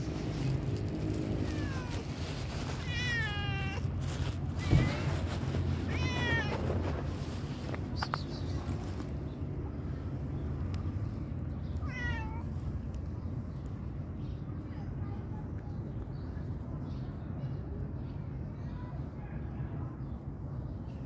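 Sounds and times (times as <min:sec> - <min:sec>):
cat meowing: 0:01.4 - 0:02.2, 0:02.8 - 0:06.9, 0:11.8 - 0:12.5.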